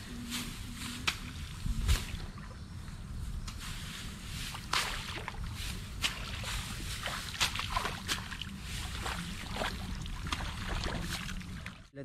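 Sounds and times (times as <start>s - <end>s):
muddy water splashing: 4.4s - 11.9s.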